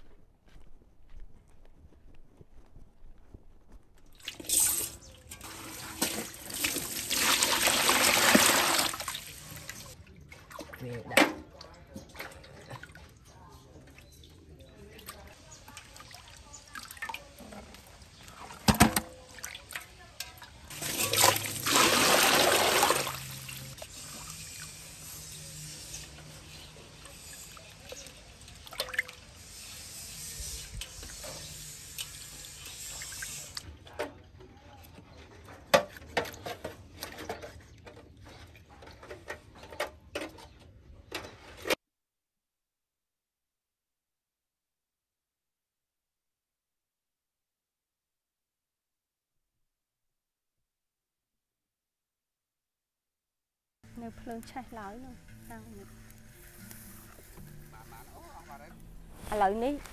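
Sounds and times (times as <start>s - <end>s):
water splashing in a metal basin: 4.2s - 34.0s.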